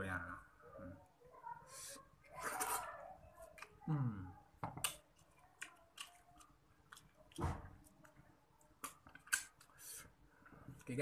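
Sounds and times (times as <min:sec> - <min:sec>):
wet chewing and lip-smacking: 0:04.8 - 0:10.0.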